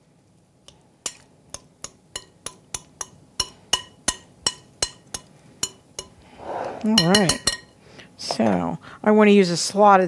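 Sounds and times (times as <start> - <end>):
metal spoon clinking against glass bowl: 1.8 - 6.1, 6.9 - 7.7.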